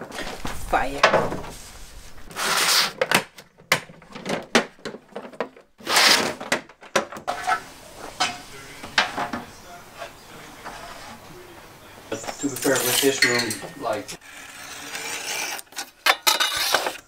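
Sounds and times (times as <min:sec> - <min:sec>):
metal track scraping: 0:07.3 - 0:11.5, 0:12.2 - 0:17.0.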